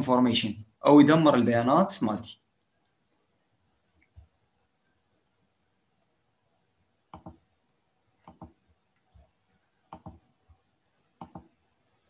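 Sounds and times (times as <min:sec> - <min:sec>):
computer mouse button clicks: 0:07.1 - 0:07.4, 0:09.9 - 0:10.2, 0:11.2 - 0:11.5.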